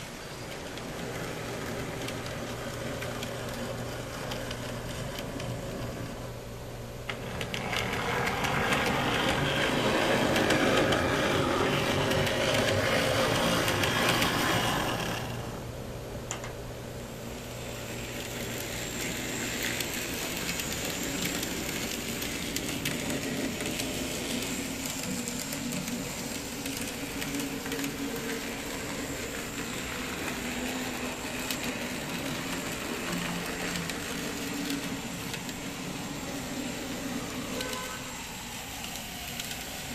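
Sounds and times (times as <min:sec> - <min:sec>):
metal wheels rolling on rail: 0:00.0 - 0:06.2, 0:07.0 - 0:15.7, 0:17.2 - 0:39.9.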